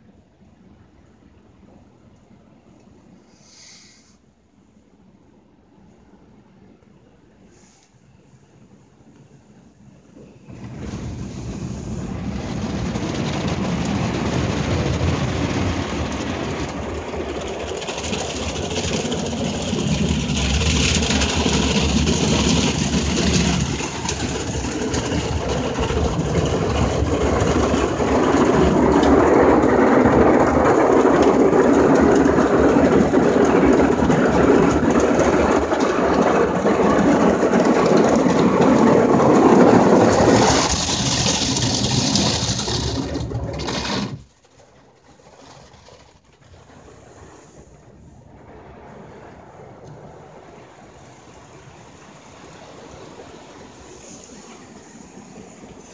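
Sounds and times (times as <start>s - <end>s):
car wash brushes scrubbing: 10.5s - 47.7s.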